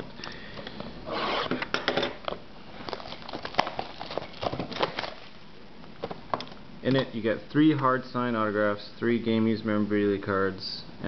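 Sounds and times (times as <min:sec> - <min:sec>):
plastic wrap crinkling: 0:02.2 - 0:06.6.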